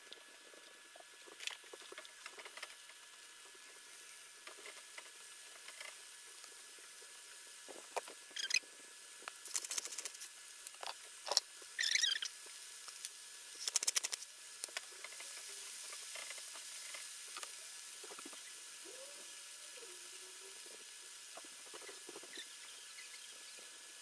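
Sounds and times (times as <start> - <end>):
mushroom sizzling in oil: 0.0 - 24.0
quick run of clicks: 9.4 - 10.3, 13.6 - 14.3.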